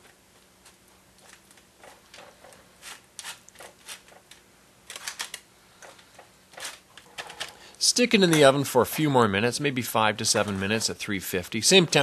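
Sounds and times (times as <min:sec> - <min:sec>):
parchment paper rustling: 0:10.1 - 0:12.0.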